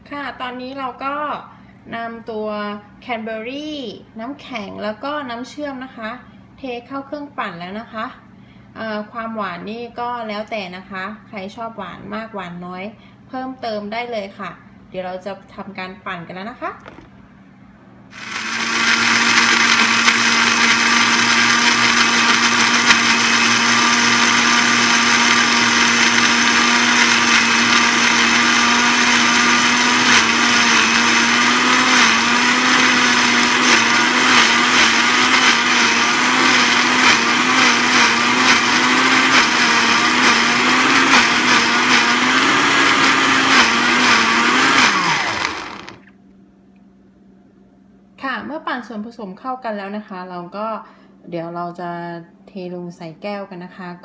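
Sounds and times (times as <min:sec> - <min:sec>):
blender crushing ice: 0:18.2 - 0:46.1.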